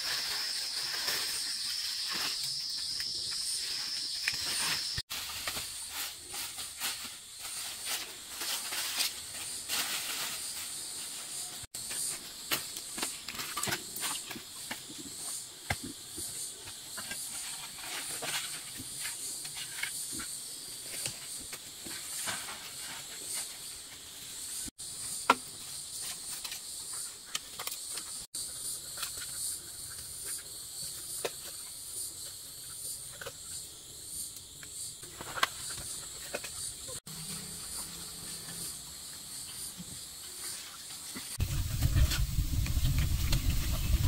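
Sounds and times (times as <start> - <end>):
insects trilling: 0.0 - 44.0.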